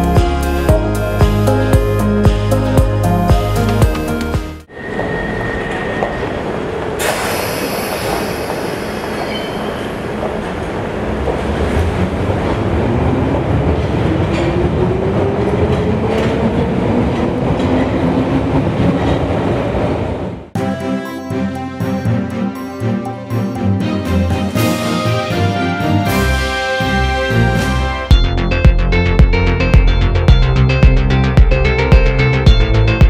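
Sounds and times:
train rumble: 0:04.6 - 0:20.6
train whine rising in pitch: 0:04.7 - 0:09.9.

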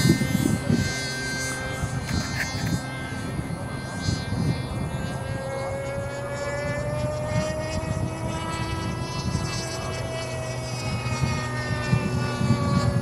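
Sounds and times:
low gusty rumble: 0:00.0 - 0:13.0
model plane engine drone: 0:00.0 - 0:13.0.

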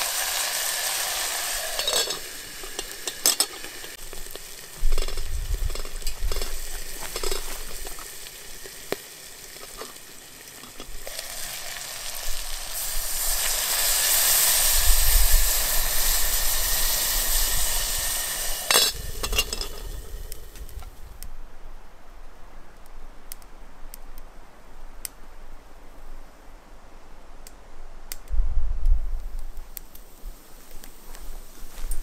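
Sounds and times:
sharp crack from fire: 0:00.0 - 0:21.4, 0:27.4 - 0:32.0
pot steaming with hissing sizzle: 0:00.0 - 0:21.6, 0:29.1 - 0:32.0
campfire crackling: 0:00.0 - 0:32.0.

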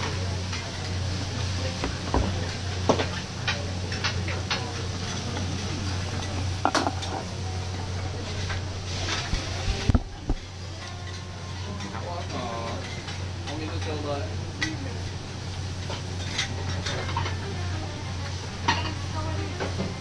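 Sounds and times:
busy restaurant background: 0:00.0 - 0:20.0
metal utensils clinking on a griddle: 0:10.7 - 0:14.9, 0:15.8 - 0:17.6, 0:18.6 - 0:19.3.

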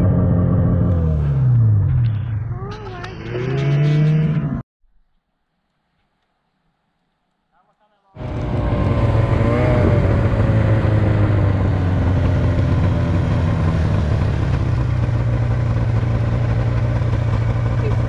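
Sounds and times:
snowmobile engine running: 0:08.2 - 0:18.0.

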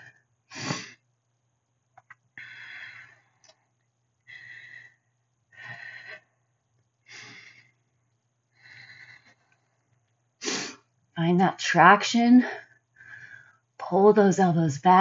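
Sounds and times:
woman breathing: 0:02.3 - 0:10.9, 0:12.4 - 0:13.8.

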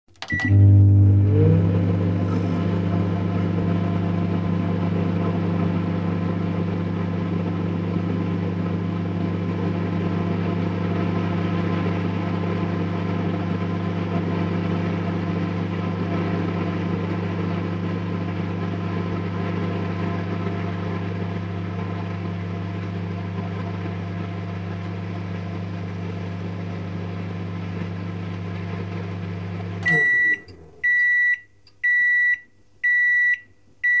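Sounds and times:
microwave oven humming: 0:00.1 - 0:34.0
high beeps: 0:29.8 - 0:34.0.

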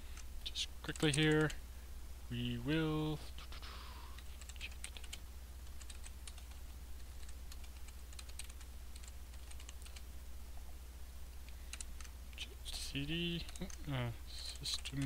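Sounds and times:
steady low hum: 0:00.0 - 0:15.0
keyboard typing: 0:00.9 - 0:01.6, 0:04.1 - 0:10.0, 0:11.7 - 0:12.2, 0:13.3 - 0:13.8, 0:14.4 - 0:15.0.

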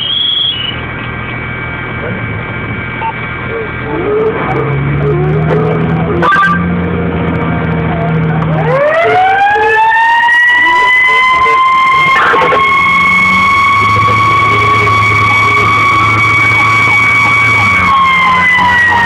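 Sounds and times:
fire engine running: 0:00.0 - 0:19.0
siren winding up: 0:03.9 - 0:06.8, 0:08.4 - 0:19.0.

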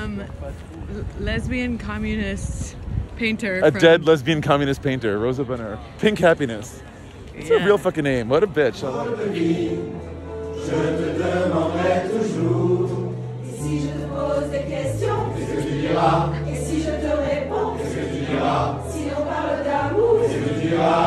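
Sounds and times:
mixed choir singing: 0:08.7 - 0:21.0.

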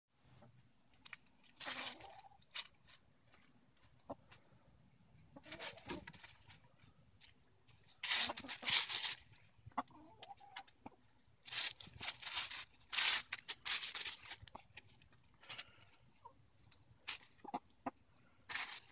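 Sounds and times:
hens scratching in leaves: 0:01.3 - 0:04.1, 0:05.4 - 0:06.8, 0:07.7 - 0:10.8, 0:11.4 - 0:16.2, 0:18.5 - 0:18.9
hens clucking: 0:01.6 - 0:02.8, 0:03.8 - 0:04.4, 0:05.1 - 0:06.9, 0:07.8 - 0:14.8, 0:15.4 - 0:18.8.

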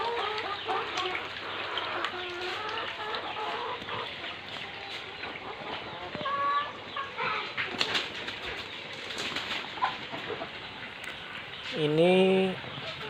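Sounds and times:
water pouring from a pipe: 0:00.0 - 0:05.9
hens clucking: 0:00.0 - 0:11.7, 0:12.3 - 0:13.0.

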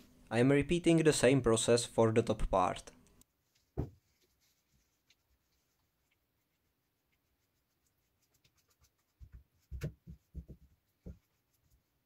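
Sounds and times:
brush dabbing soft knocks: 0:03.4 - 0:11.9.

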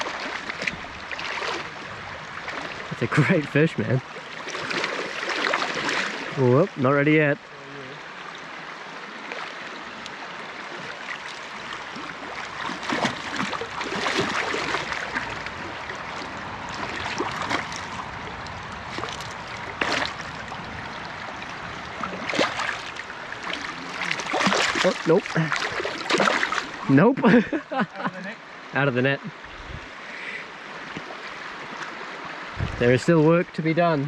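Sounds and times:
river water rushing: 0:00.0 - 0:34.0
fish splashing at surface: 0:12.5 - 0:15.4, 0:18.9 - 0:20.3, 0:22.1 - 0:26.8.

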